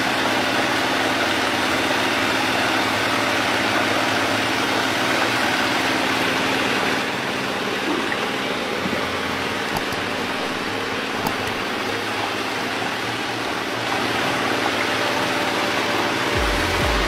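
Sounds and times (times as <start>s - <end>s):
water pouring into a pond: 0.0s - 16.3s
music with a low beat: 16.4s - 17.0s.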